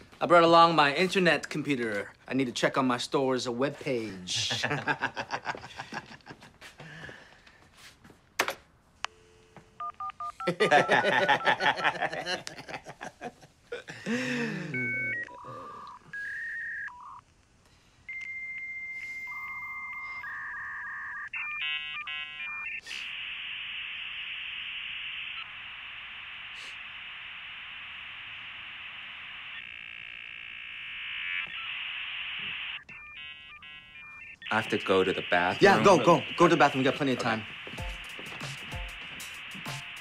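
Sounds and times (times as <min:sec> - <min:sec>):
modem tones: 0:09.0 - 0:12.1, 0:14.5 - 0:17.4, 0:18.1 - 0:40.0
modem chirps: 0:09.1 - 0:12.0, 0:14.7 - 0:17.2, 0:18.1 - 0:40.0
modem answer tone: 0:09.8 - 0:11.9, 0:32.9 - 0:39.0
modem hissing static: 0:10.4 - 0:12.4, 0:19.4 - 0:40.0.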